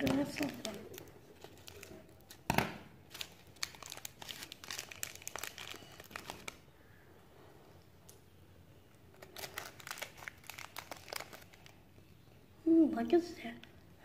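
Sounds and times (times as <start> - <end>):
foil wrapper crinkling and tearing: 0.3 - 2.4, 3.1 - 6.6, 9.1 - 11.8.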